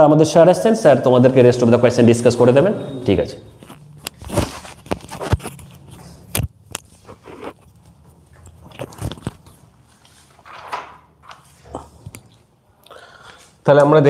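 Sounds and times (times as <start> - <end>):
microphone rustling: 3.5 - 12.5.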